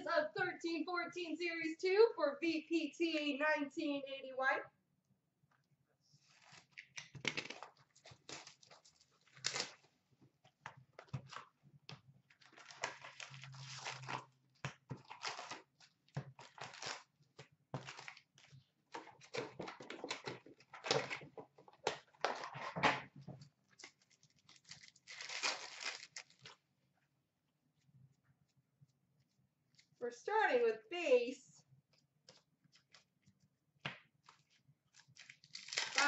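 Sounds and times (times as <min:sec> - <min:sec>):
shrink wrap crinkling and tearing: 0:06.3 - 0:09.9, 0:12.3 - 0:21.2, 0:23.7 - 0:26.6, 0:34.2 - 0:36.0
card packs rustling: 0:23.8 - 0:26.6.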